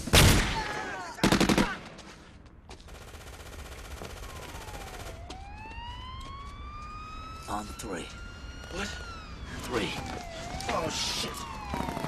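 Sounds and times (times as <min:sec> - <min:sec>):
siren: 0:03.7 - 0:12.0.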